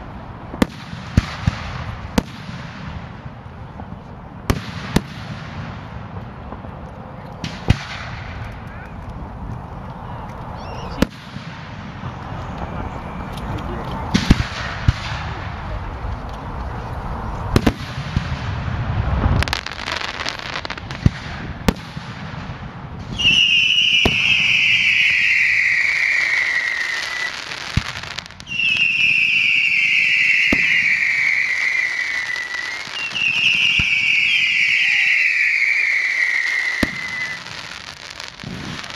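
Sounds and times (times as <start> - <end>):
whistling fireworks: 0.0 - 16.2, 16.9 - 38.9
firework shells bursting: 23.1 - 38.9.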